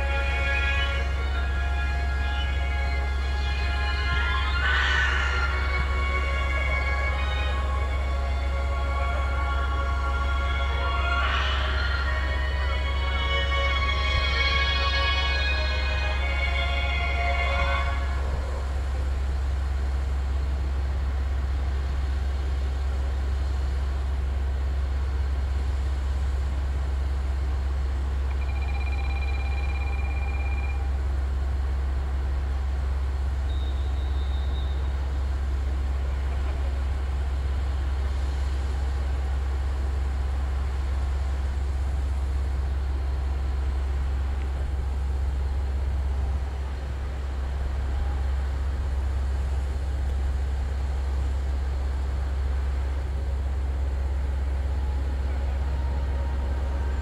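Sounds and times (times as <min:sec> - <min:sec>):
diesel railcar engines idling: 0:00.0 - 0:57.0
faint high tones: 0:28.3 - 0:31.1.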